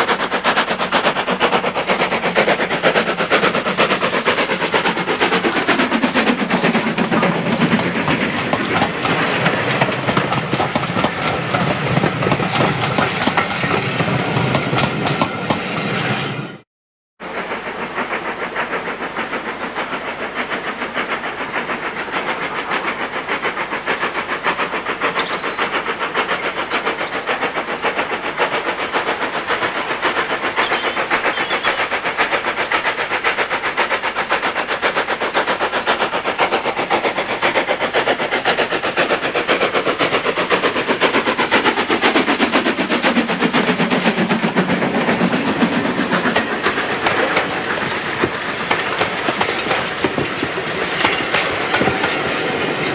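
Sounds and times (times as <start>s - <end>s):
steam locomotive exhaust beats: 0.0s - 16.6s, 17.2s - 52.9s
coaches clattering over rails: 2.6s - 16.2s, 35.8s - 52.9s.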